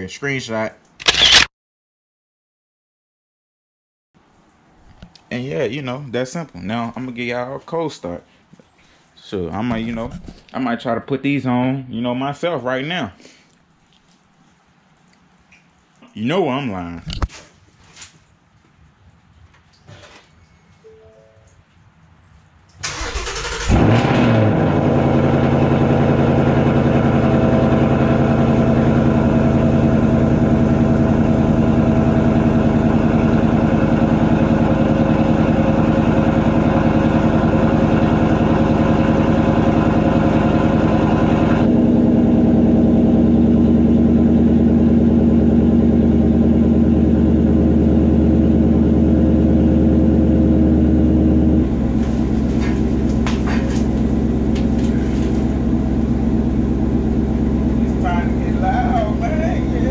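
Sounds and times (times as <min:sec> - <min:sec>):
car engine starting and idling: 0:22.8 - 0:59.9.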